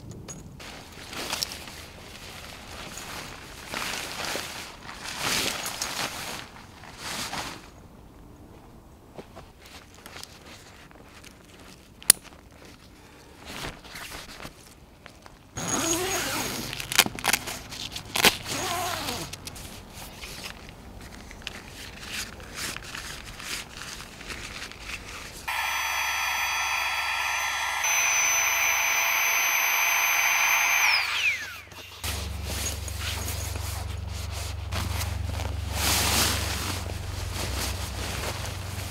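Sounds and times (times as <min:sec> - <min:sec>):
tent fabric rustling: 0:00.6 - 0:07.8, 0:32.1 - 0:38.9
steady hum of fixed tones: 0:25.5 - 0:32.0.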